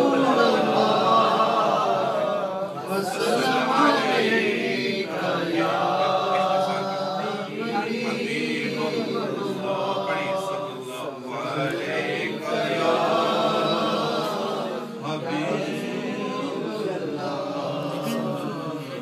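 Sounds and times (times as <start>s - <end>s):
man chanting: 0.0s - 12.5s.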